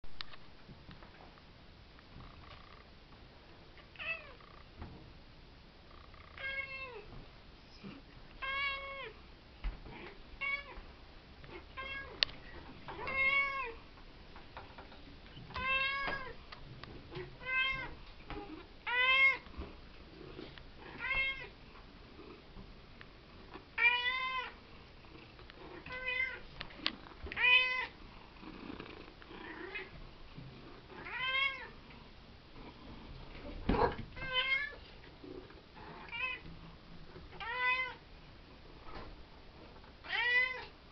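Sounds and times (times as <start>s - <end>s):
cat meowing: 12.9s - 13.8s, 15.5s - 16.4s, 27.4s - 27.9s, 37.4s - 38.0s, 40.0s - 40.7s.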